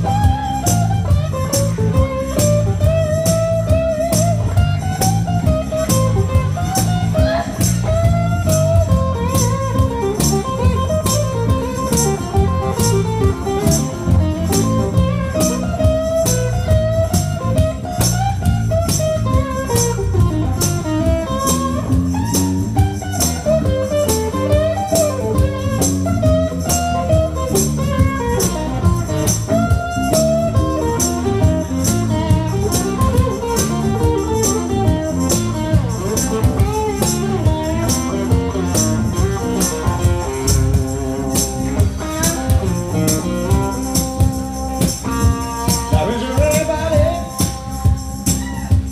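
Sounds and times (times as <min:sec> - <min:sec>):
acoustic guitar: 0:00.0 - 0:48.9
bass guitar: 0:00.0 - 0:48.9
tambourine striking: 0:00.0 - 0:48.9.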